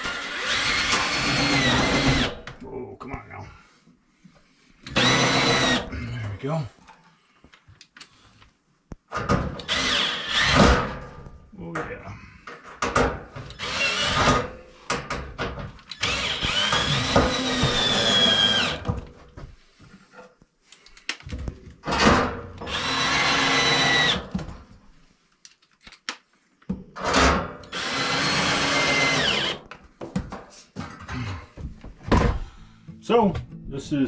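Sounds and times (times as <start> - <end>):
cordless drill driving screws: 0.0 - 2.4, 4.9 - 5.8, 9.6 - 10.8, 13.5 - 14.5, 15.9 - 18.9, 22.6 - 24.3, 27.6 - 29.6.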